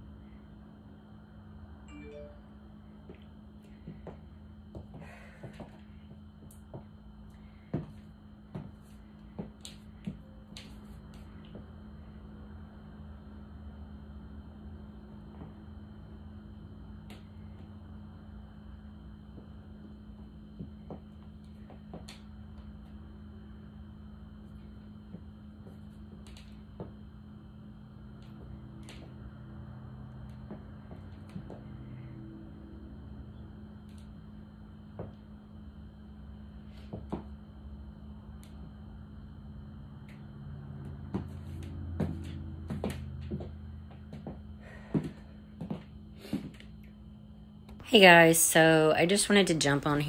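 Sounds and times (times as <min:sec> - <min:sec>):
low room hum: 0:00.0 - 0:50.0
high heels on hardwood floor: 0:07.7 - 0:10.7, 0:30.3 - 0:31.6, 0:41.0 - 0:46.7.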